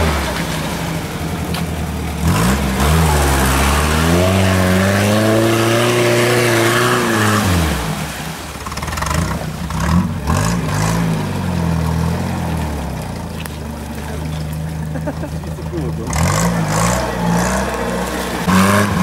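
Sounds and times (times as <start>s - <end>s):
engine revving hard: 2.2s - 13.1s, 15.9s - 19.0s.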